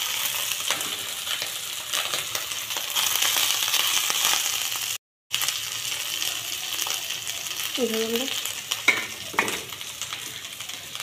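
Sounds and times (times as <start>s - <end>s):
oil sizzling in a pan: 0.0s - 11.0s.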